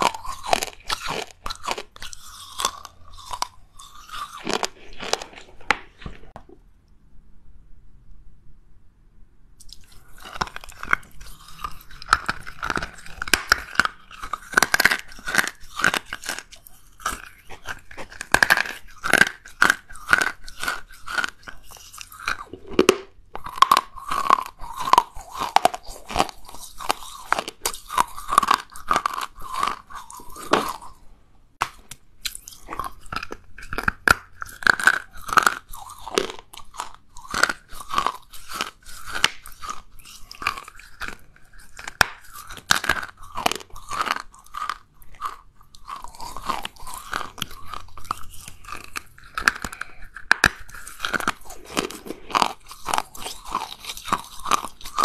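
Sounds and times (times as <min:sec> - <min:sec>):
clay chunks crunching being chewed: 0:00.0 - 0:06.6, 0:09.6 - 0:55.0.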